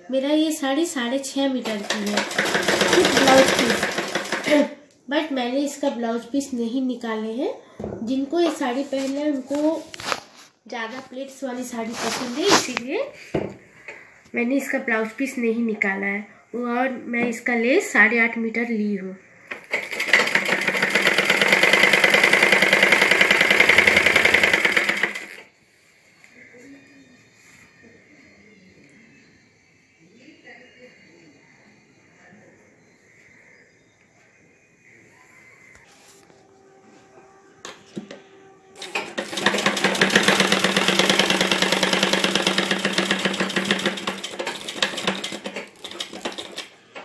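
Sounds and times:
sewing machine running: 1.6s - 4.7s, 19.5s - 25.5s, 38.8s - 46.8s.

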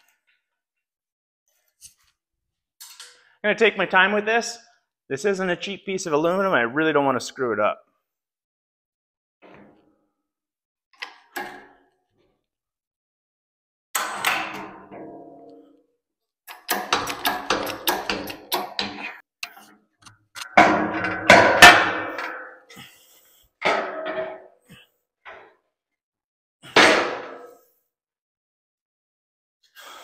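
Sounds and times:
aluminum sheet clanging: 16.5s - 19.2s, 20.4s - 22.6s
rattling knocks: 16.6s - 19.1s.

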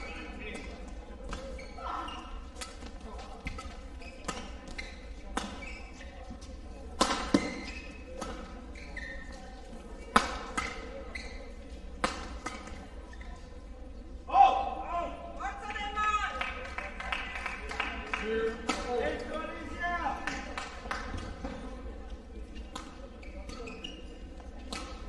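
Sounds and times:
badminton racket hitting shuttlecock: 3.5s - 5.6s, 7.0s - 8.6s, 10.1s - 10.9s, 12.0s - 12.8s, 24.6s - 25.0s.

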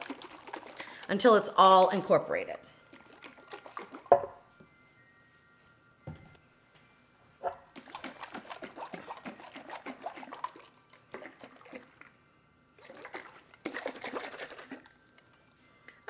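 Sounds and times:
liquid sloshing in shaken jar: 0.0s - 1.2s, 2.8s - 4.2s, 7.7s - 12.1s, 12.8s - 15.2s.

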